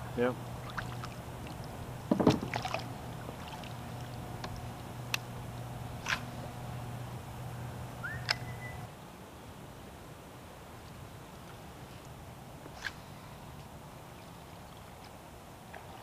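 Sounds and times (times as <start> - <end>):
steady low hum: 0.0 - 9.8
knocks and clicks of kayak gear: 2.1 - 2.6
short rising whistle: 8.0 - 8.9.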